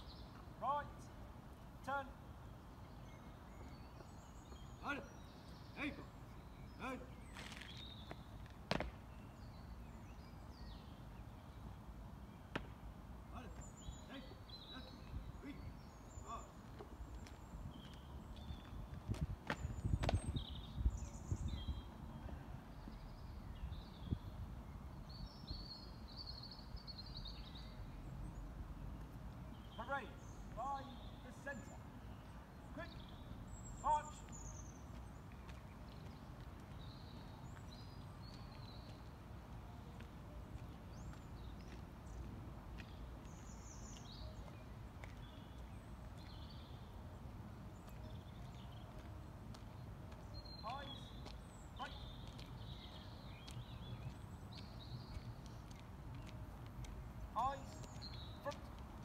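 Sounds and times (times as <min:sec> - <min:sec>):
birds singing: 0:00.0 - 0:59.0
boots marching on tarmac: 0:07.3 - 0:09.1, 0:34.1 - 0:46.7, 0:47.4 - 0:59.0.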